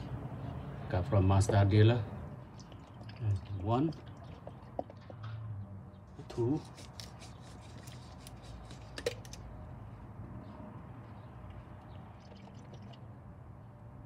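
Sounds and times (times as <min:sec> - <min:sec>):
oil pouring into funnel: 0:02.5 - 0:05.1, 0:12.2 - 0:13.1.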